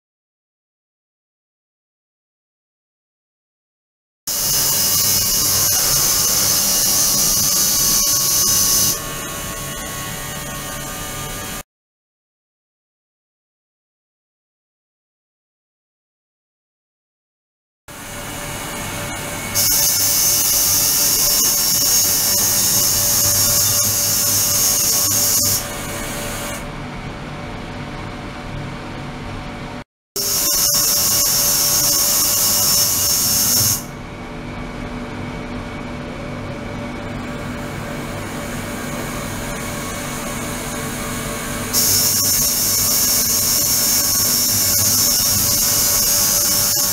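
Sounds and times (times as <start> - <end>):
loud high-pitched hiss: 4.3 - 9.0, 19.5 - 25.8, 30.2 - 33.9, 41.8 - 46.9
electrical machine hum: 33.9 - 41.7.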